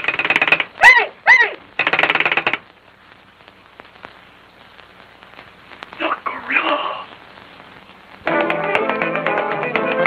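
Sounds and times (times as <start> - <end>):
high cartoon voice calls: 0.8 - 1.7.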